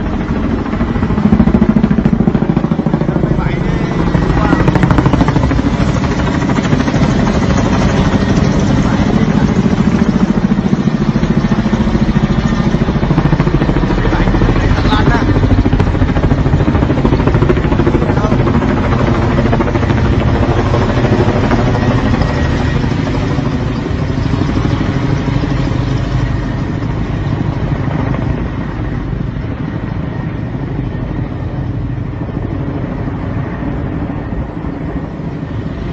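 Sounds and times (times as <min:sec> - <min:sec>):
voices: 0:02.4 - 0:10.7, 0:12.8 - 0:15.8, 0:16.6 - 0:19.7.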